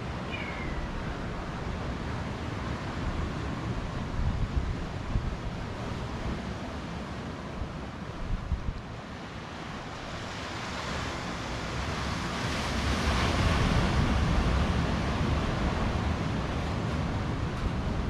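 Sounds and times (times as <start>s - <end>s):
car road and wind noise: 0.0s - 18.0s.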